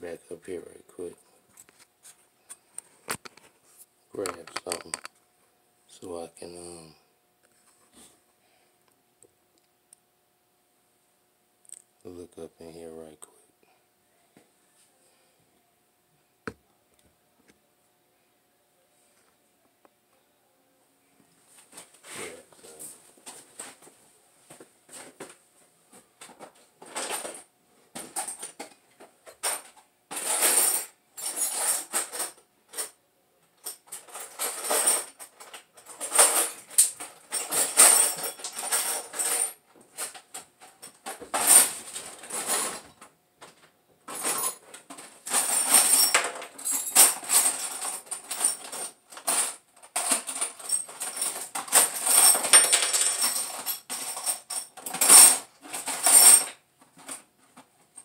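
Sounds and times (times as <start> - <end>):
metal parts clinking and rattling: 4.2 - 5.1, 26.2 - 27.4, 28.0 - 33.0, 33.6 - 43.0, 44.1 - 57.3.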